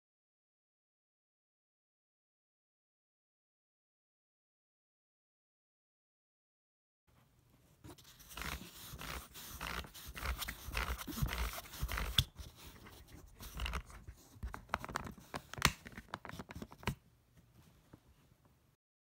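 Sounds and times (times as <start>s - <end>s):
fingers scraping plastic lock: 8.2s - 17.0s.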